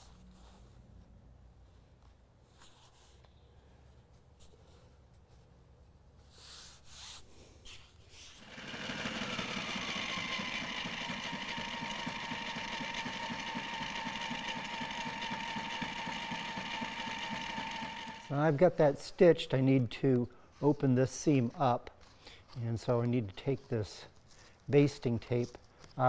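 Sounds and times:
sewing machine stitching: 8.4s - 18.4s.

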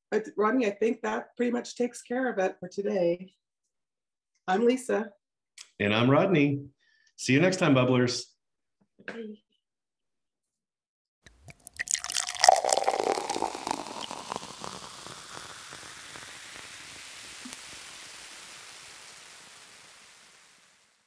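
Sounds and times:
fizzy drink pouring into glass: 11.3s - 21.0s
hiss of bubbles: 11.4s - 21.0s.

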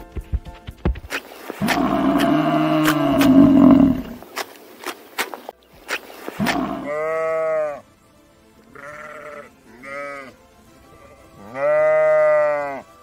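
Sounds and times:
sheep bleating: 6.4s - 7.8s, 8.7s - 12.9s.

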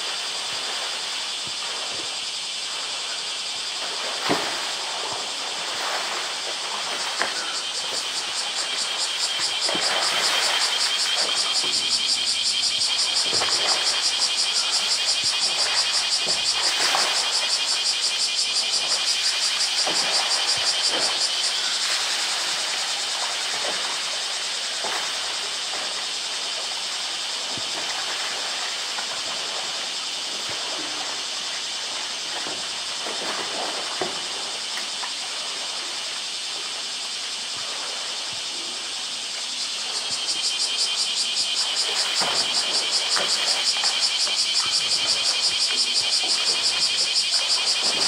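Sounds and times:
water splashing: 0.0s - 26.1s, 39.7s - 48.0s
cicadas chorus: 0.0s - 48.0s.

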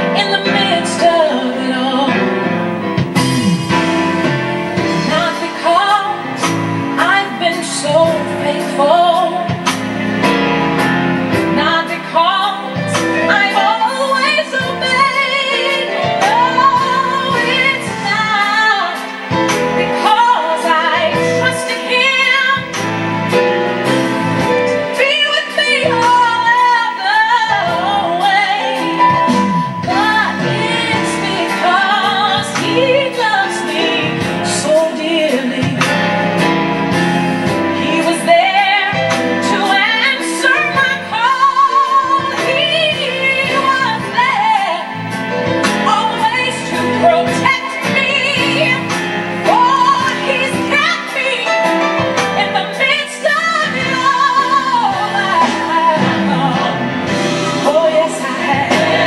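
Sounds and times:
woman singing gospel song: 0.0s - 2.4s, 5.0s - 9.8s, 11.5s - 22.8s, 24.8s - 36.0s, 37.7s - 45.0s, 45.7s - 59.0s
musical accompaniment: 0.0s - 59.0s.

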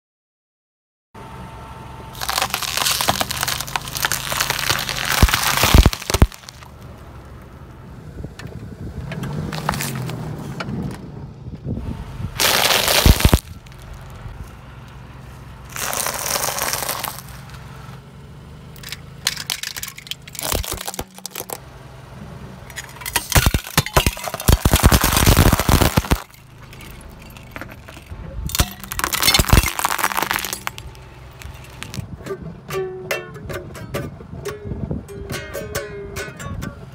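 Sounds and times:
faint low engine hum: 1.2s - 36.9s
glass tubes shattering: 2.2s - 6.7s, 12.4s - 14.1s, 15.7s - 17.5s, 18.8s - 21.6s, 22.7s - 32.0s
tyre crushing objects: 2.2s - 6.7s, 9.5s - 10.2s, 12.4s - 14.2s, 15.7s - 17.6s, 18.8s - 21.6s, 22.7s - 32.0s.

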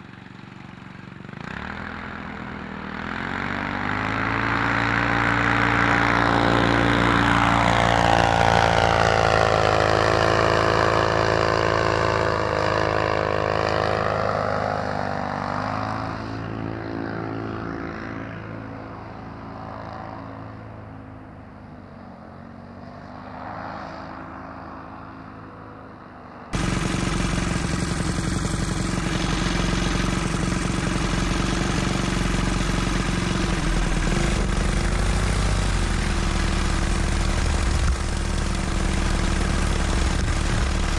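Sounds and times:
paramotor engine close up: 0.0s - 18.2s, 26.6s - 40.9s
paramotor engine droning: 0.0s - 40.9s.

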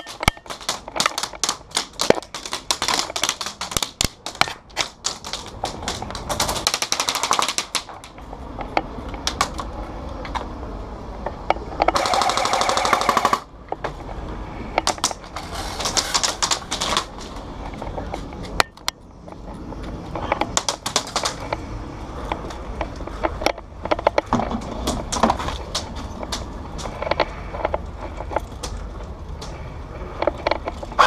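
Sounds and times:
full-auto airsoft gun burst: 12.0s - 13.5s.

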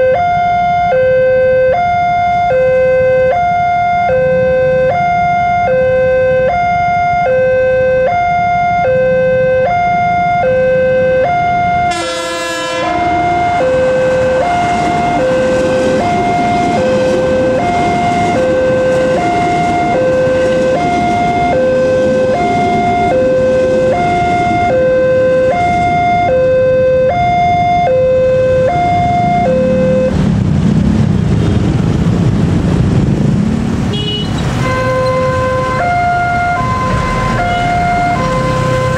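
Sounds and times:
level crossing warning bell: 0.0s - 30.2s, 34.4s - 38.9s
road traffic rumble: 0.0s - 38.9s
electric train rumbling past: 11.0s - 38.9s.

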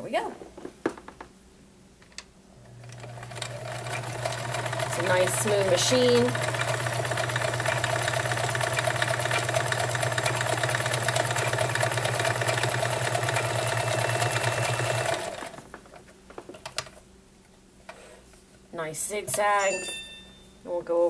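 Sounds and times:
sewing machine stitching: 2.8s - 15.7s.

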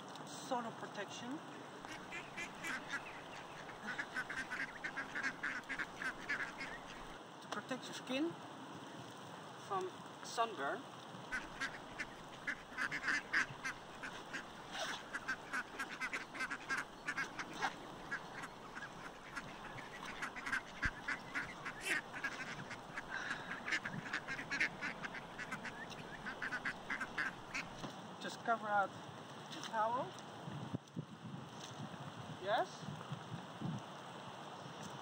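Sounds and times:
waterfowl calling: 1.5s - 7.2s, 11.2s - 27.8s.

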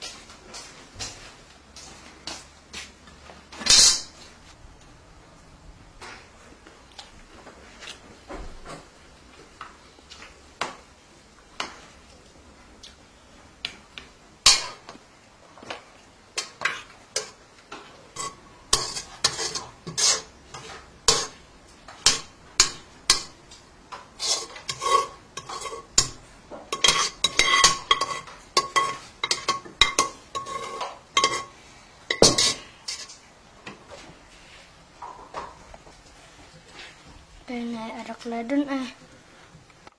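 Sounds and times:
metal spoon clinking on cookware: 18.2s - 21.4s, 24.2s - 31.5s, 32.1s - 33.2s.

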